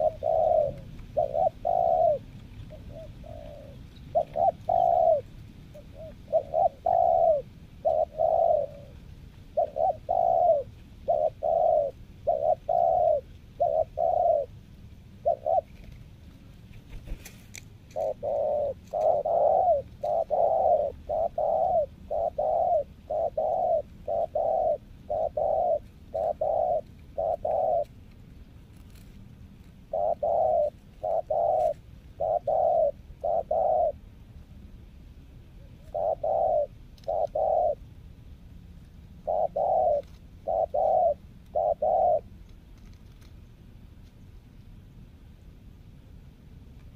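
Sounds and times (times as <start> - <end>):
dove cooing: 0.0 - 17.2, 17.9 - 28.0, 29.8 - 34.1, 35.6 - 37.9, 39.2 - 42.4.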